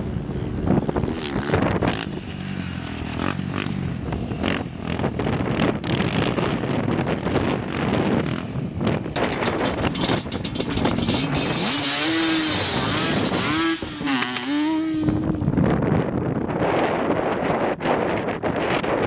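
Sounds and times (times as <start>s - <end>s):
atv engines running: 0.0s - 15.6s
wind rushing over microphone: 0.0s - 19.0s
engine revving up and down: 9.5s - 15.4s.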